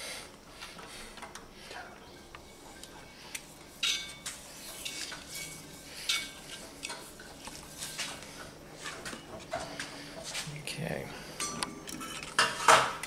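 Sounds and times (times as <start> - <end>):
metal parts clinking and scraping: 11.4 - 12.9.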